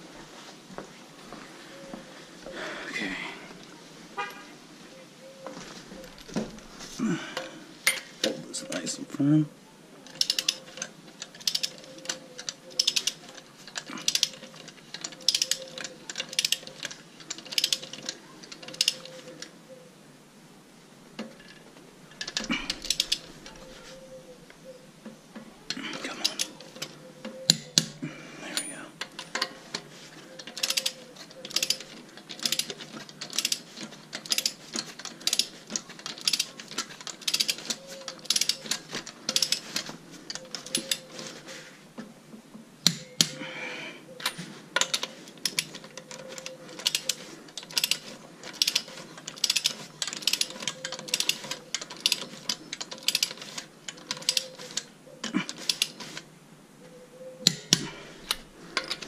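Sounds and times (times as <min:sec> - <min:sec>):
torque wrench ratcheting: 0:10.1 - 0:18.1, 0:22.2 - 0:23.3, 0:30.4 - 0:39.6, 0:46.4 - 0:54.9.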